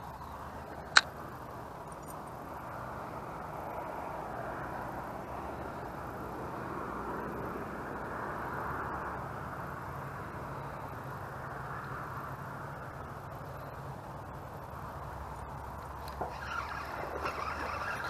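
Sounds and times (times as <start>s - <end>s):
distant engine drone: 0.0s - 18.0s.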